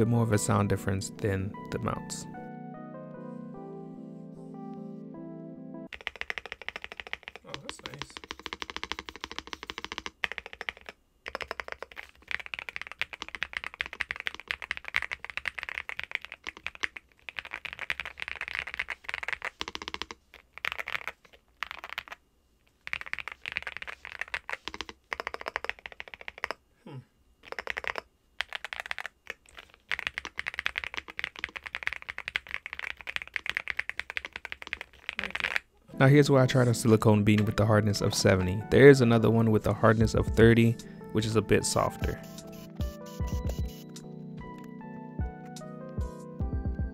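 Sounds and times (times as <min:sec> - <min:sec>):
fast typing on mechanical keyboard: 0:05.9 - 0:22.2, 0:22.8 - 0:26.6, 0:27.4 - 0:35.6.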